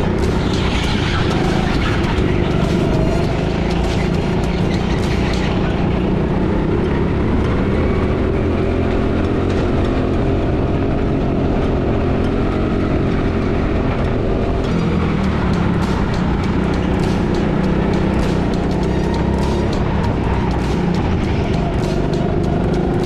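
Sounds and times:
go-kart engine revving: 0.0 - 23.0.

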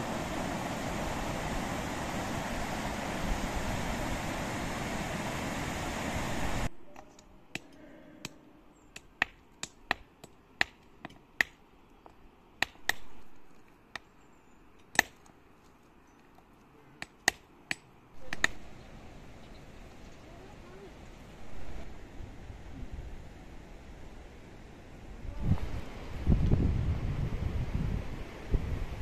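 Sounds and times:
river rushing: 0.0 - 6.7, 18.2 - 29.0
hand tools striking stone: 9.0 - 11.6, 12.6 - 14.0, 17.0 - 18.6.

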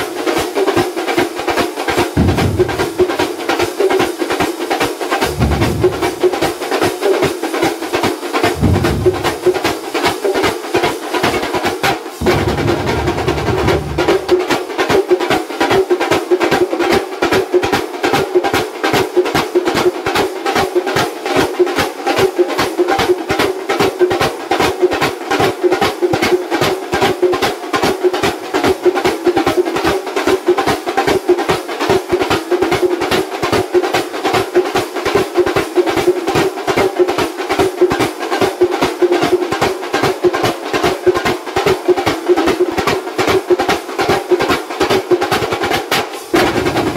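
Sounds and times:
small drums: 0.0 - 46.9
large drums beaten with sticks: 2.0 - 3.6, 5.2 - 6.8, 8.5 - 10.1, 12.2 - 14.9, 40.4 - 46.9.

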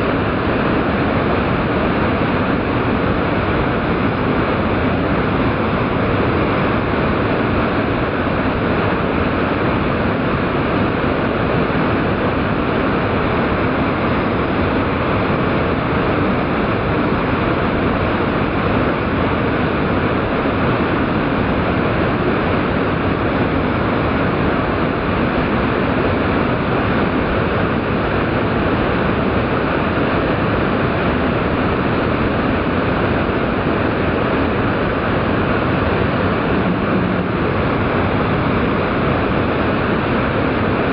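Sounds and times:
waterfall rushing slowed down: 31.1 - 40.9.

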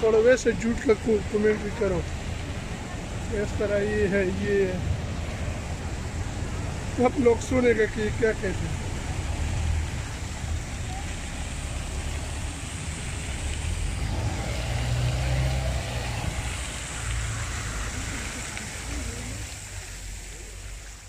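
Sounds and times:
background voices: 0.0 - 21.0
bus engine rumbling: 0.0 - 21.0
fountain water hissing: 0.0 - 21.0.

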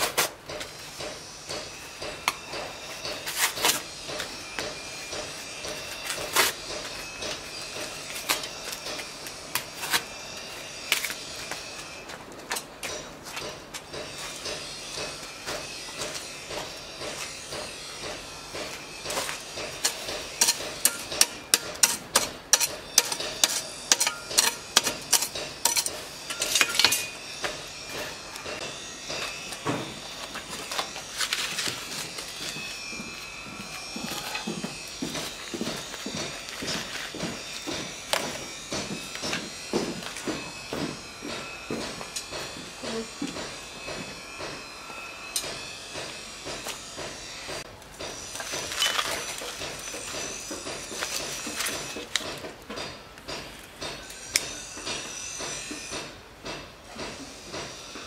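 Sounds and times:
cardboard and paper rustling: 30.1 - 38.4, 50.8 - 52.2
cardboard tearing and crumpling: 30.2 - 34.5.

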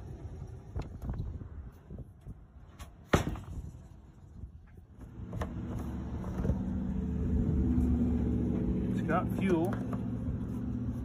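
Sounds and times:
sharp knock on cart body: 3.1 - 3.6.

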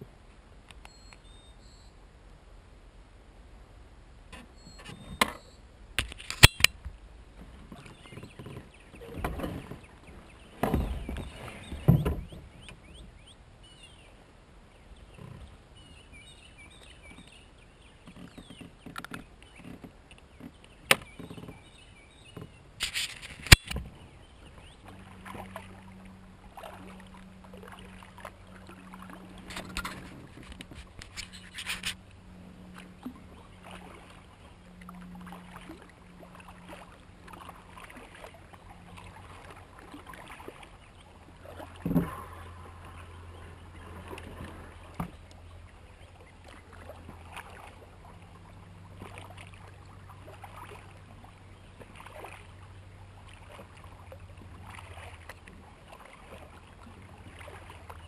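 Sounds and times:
knocks and scrapes on plastic hull: 7.4 - 9.9, 10.6 - 12.7.

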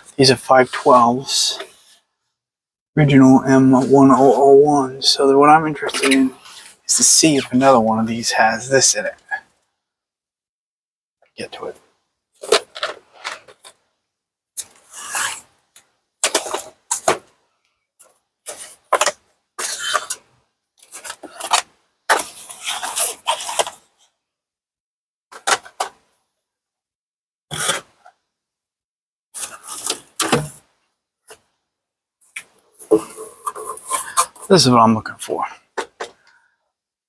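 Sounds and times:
objects scraping and rubbing: 14.6 - 15.6, 18.5 - 23.8, 32.4 - 34.7.

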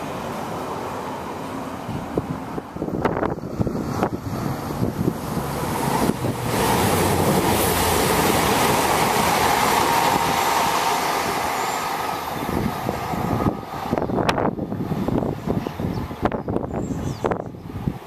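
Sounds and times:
train passing: 0.0 - 18.0.

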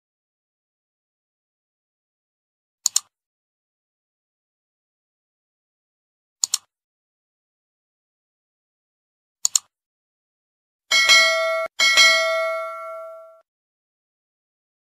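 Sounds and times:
mouse double click: 2.8 - 3.1, 6.4 - 6.7, 9.4 - 9.7
notification bell ringing: 10.9 - 13.4.

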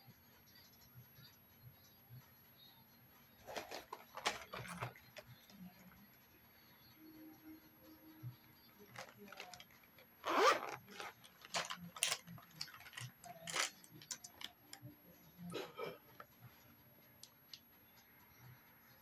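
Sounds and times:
makeup items clicking and rustling: 3.4 - 5.5, 8.8 - 14.8.

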